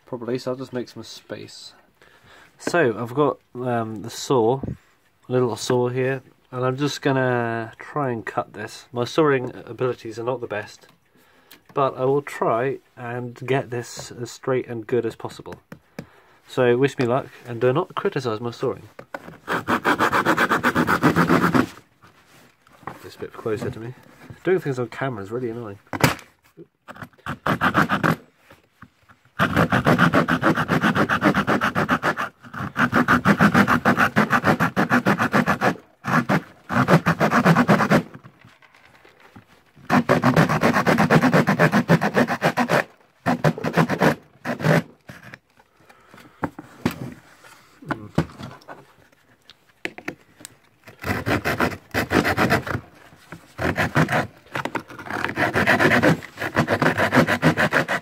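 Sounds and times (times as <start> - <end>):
hand saw cutting plywood: 19.2 - 21.9, 26.8 - 28.3, 29.3 - 38.3, 39.8 - 45.4, 50.8 - 58.0.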